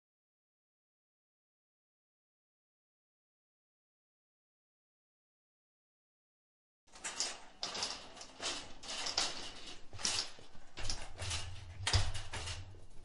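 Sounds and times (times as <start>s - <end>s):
shopping cart rattling: 6.9s - 13.0s.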